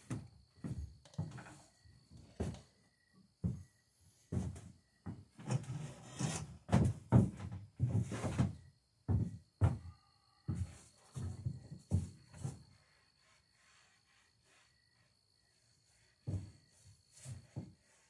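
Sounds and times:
footsteps on wooden floor: 0:00.0 - 0:02.8, 0:03.4 - 0:05.6, 0:06.2 - 0:12.8, 0:16.3 - 0:17.9.

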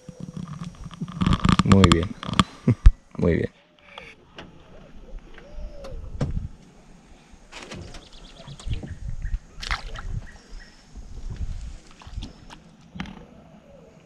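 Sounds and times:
fish splashing into water: 0:09.6 - 0:10.1.

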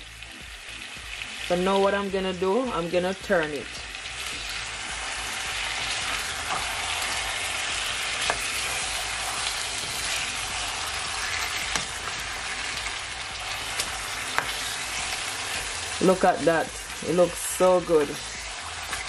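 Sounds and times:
chicken sizzling in a frying pan: 0:00.0 - 0:19.0
spatula clicking and scraping: 0:08.0 - 0:10.3, 0:13.4 - 0:15.8, 0:18.2 - 0:19.0.

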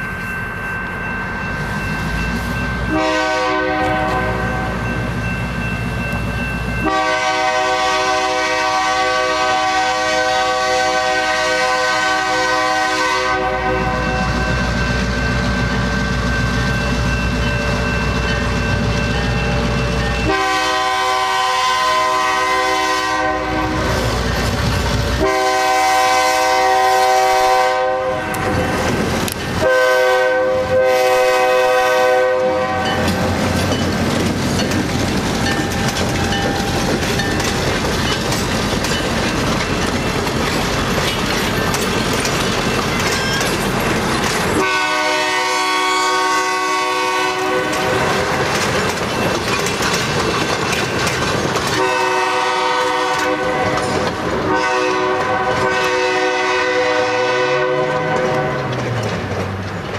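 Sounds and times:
diesel locomotive engine running: 0:00.0 - 0:59.9
locomotive air horn blasts: 0:02.9 - 0:04.8, 0:06.8 - 0:14.5, 0:20.2 - 0:24.1, 0:25.2 - 0:28.8, 0:29.6 - 0:33.1, 0:44.6 - 0:48.4, 0:51.8 - 0:58.7
wheels clattering over rail joints: 0:32.8 - 0:44.7, 0:47.6 - 0:52.2, 0:57.8 - 0:59.9.

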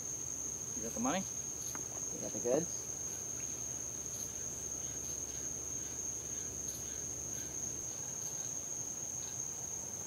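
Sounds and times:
cricket high-pitched trill: 0:00.0 - 0:10.0
scattered cricket chirps: 0:00.0 - 0:10.0.

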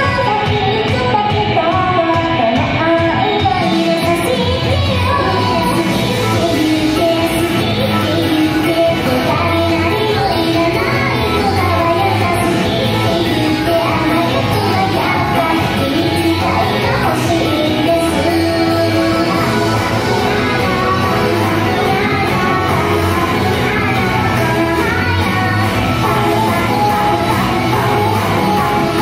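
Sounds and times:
pop song with vocals: 0:00.0 - 0:29.0.

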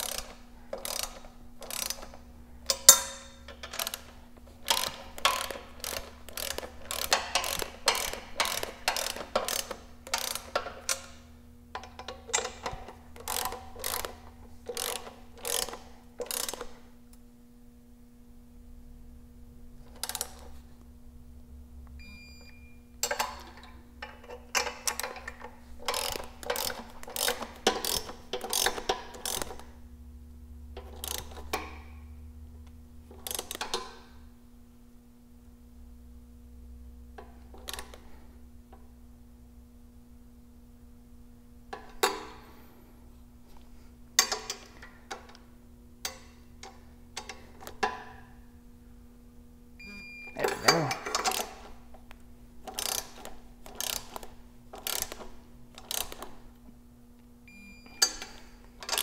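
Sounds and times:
torque wrench ratcheting clicks: 0:00.0 - 0:11.2, 0:11.8 - 0:16.8, 0:24.0 - 0:29.7, 0:30.8 - 0:31.8, 0:33.2 - 0:33.9, 0:51.1 - 0:51.6, 0:52.7 - 0:56.4
steady low hum: 0:00.0 - 0:59.0.

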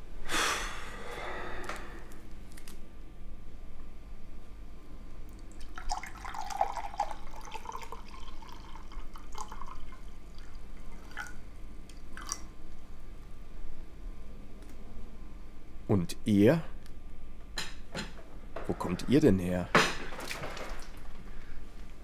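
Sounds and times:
liquid pouring into a glass: 0:05.4 - 0:11.4, 0:12.0 - 0:12.5.

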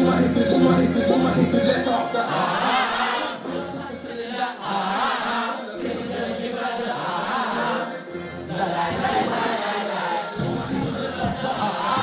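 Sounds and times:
karaoke backing track: 0:00.0 - 0:12.0
people singing into microphones: 0:00.0 - 0:12.0.

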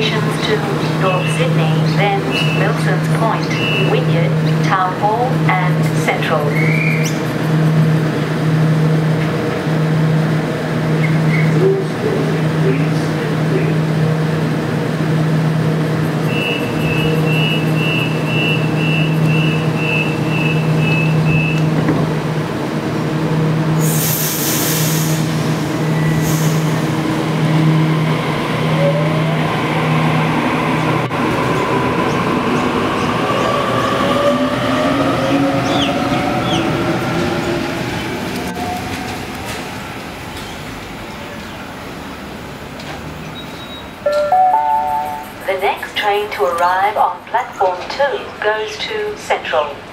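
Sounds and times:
train low hum: 0:00.0 - 0:49.9
air hiss: 0:23.8 - 0:25.3.

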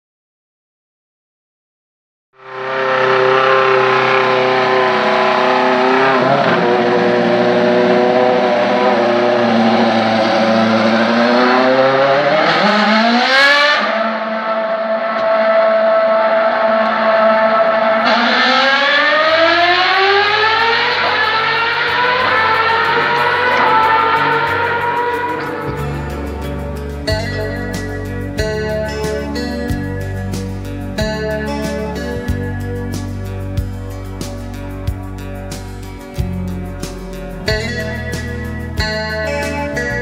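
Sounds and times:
racing car engine at high revs: 0:02.4 - 0:29.9.

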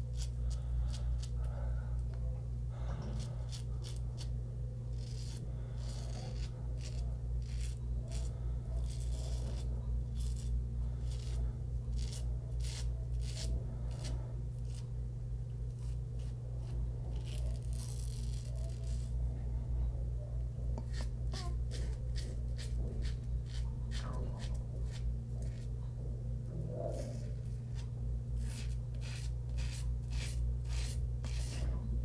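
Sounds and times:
razor scraping stubble: 0:00.0 - 0:01.4, 0:02.9 - 0:04.3, 0:04.9 - 0:14.9, 0:15.7 - 0:19.2, 0:20.8 - 0:25.8, 0:26.7 - 0:31.8
steady low hum: 0:00.0 - 0:32.0.

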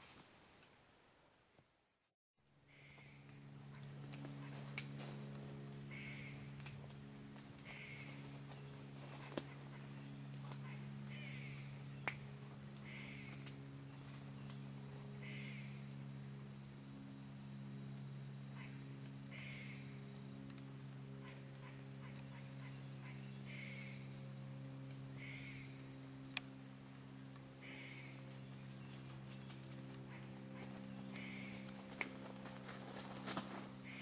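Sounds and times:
insects droning: 0:00.0 - 0:34.0
bird calling: 0:05.8 - 0:06.7, 0:07.6 - 0:14.2, 0:15.1 - 0:15.9, 0:18.3 - 0:20.0, 0:20.6 - 0:26.0, 0:27.0 - 0:34.0.

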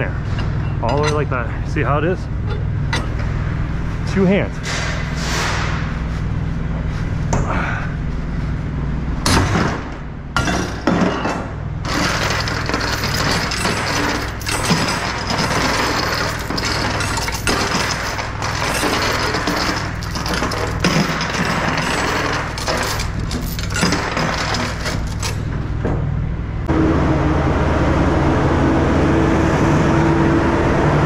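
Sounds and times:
chain rattling and clinking: 0:00.3 - 0:01.4, 0:02.4 - 0:03.2, 0:10.4 - 0:25.5.

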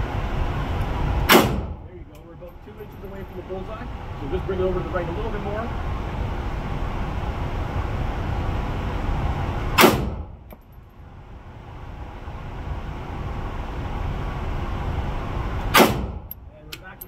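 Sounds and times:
rifle shot: 0:01.3 - 0:01.8, 0:09.8 - 0:10.3, 0:15.8 - 0:16.2.

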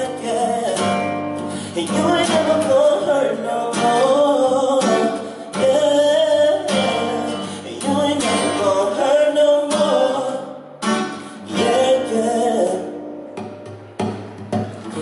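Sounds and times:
acoustic guitar strumming: 0:00.0 - 0:15.0
man singing long notes: 0:01.7 - 0:10.8, 0:11.4 - 0:13.0.

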